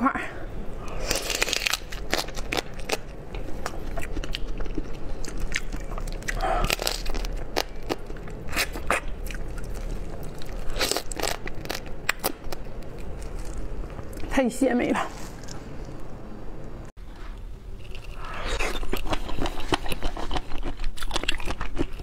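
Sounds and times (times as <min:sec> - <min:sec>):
crunching crab shell: 0:00.9 - 0:13.7.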